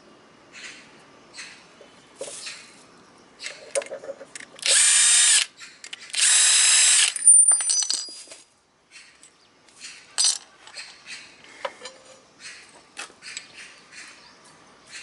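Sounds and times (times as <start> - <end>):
electric power tool running: 6.2 - 7.2.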